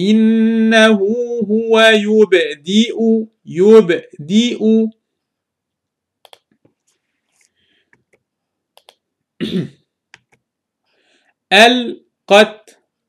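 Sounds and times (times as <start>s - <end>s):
computer mouse clicks: 6.2s - 6.8s, 7.9s - 9.0s, 10.1s - 10.5s
person clearing throat: 9.4s - 9.8s.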